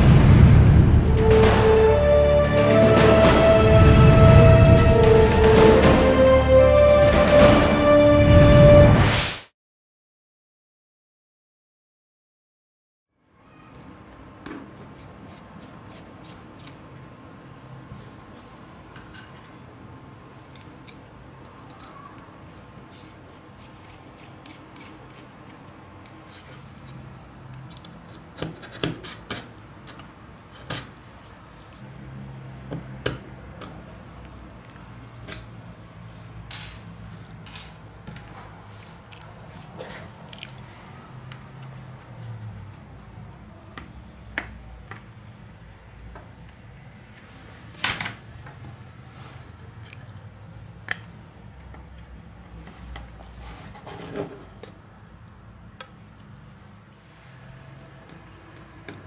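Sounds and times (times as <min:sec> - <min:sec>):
tools clicking on phone casing: 0:26.8 - 0:30.1.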